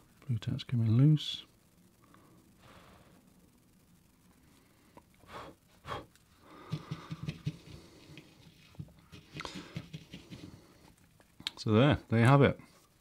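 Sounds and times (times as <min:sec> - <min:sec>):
person breathing: 0:02.0 - 0:03.3, 0:04.3 - 0:08.5, 0:09.3 - 0:11.0.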